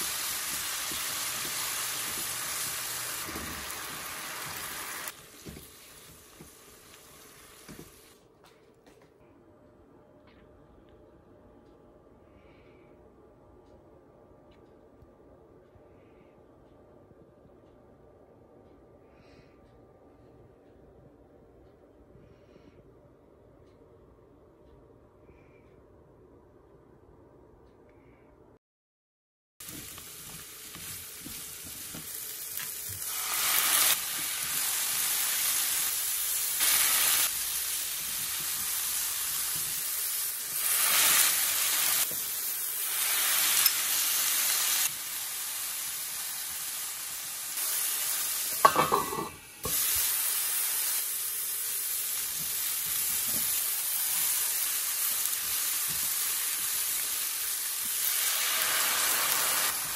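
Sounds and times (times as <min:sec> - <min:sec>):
vegetables sizzling in a frying pan: 0:00.0 - 0:08.2, 0:29.6 - 0:59.9.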